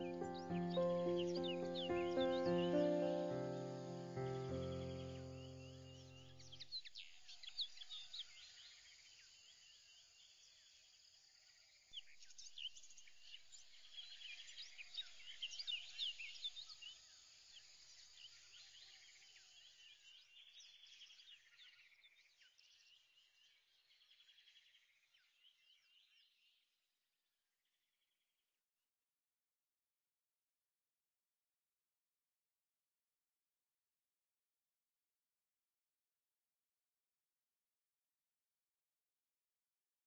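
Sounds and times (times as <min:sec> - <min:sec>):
small birds chirping: 0:00.0 - 0:10.7, 0:12.0 - 0:26.5.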